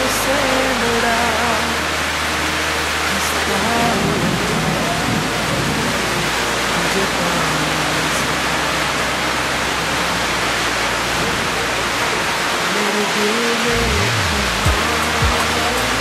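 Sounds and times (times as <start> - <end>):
heavy rain on water: 0.0 - 16.0.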